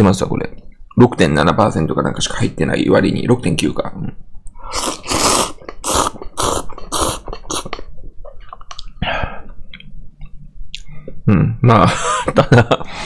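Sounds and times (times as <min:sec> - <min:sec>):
person slurping noodles: 0:04.7 - 0:07.9.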